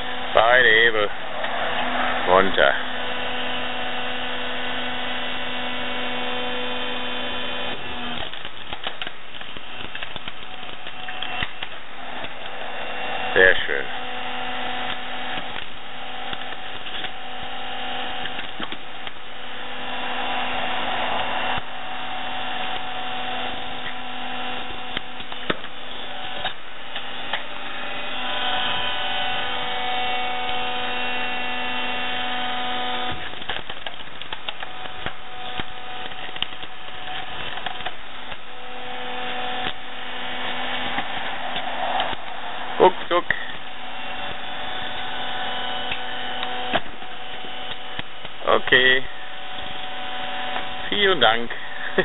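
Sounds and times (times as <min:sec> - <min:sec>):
log splitter motor humming: 0:00.0 - 0:52.0
log cracking: 0:07.7 - 0:13.9, 0:14.6 - 0:28.7, 0:32.5 - 0:48.8.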